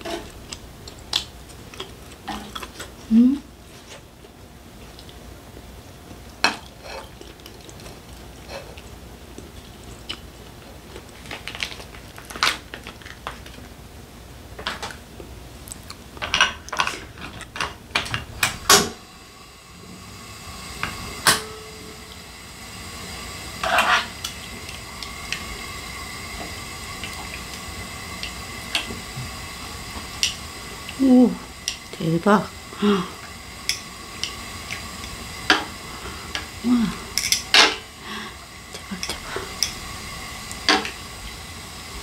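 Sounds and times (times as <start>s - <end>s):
meat hissing on griddle: 18.7s - 42.0s.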